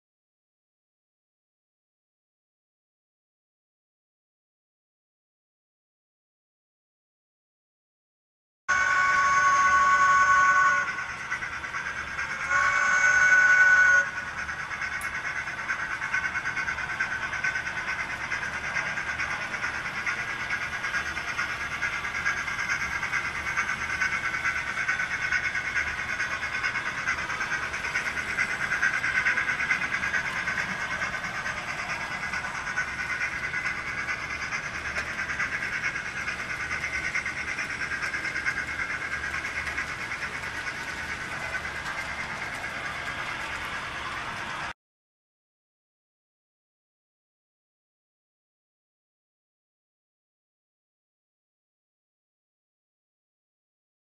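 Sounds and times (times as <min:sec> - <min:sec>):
model train whirring: 0:08.7 - 0:44.8.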